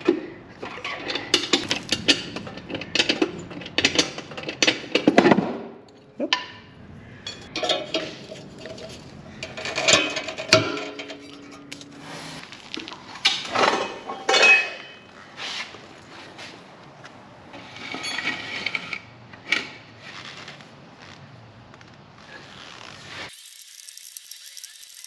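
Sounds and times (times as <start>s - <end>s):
metal clanking and clinking: 0.6s - 5.3s, 7.2s - 12.0s, 13.2s - 15.1s.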